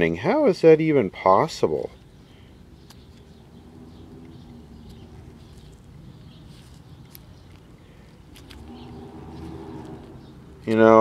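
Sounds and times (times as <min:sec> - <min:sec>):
low steady rumble: 0:02.3 - 0:07.0.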